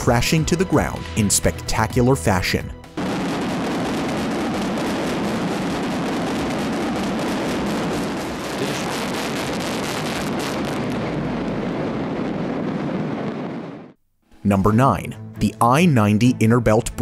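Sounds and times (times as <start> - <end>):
viaduct collapsing rumble: 3.0 - 14.0.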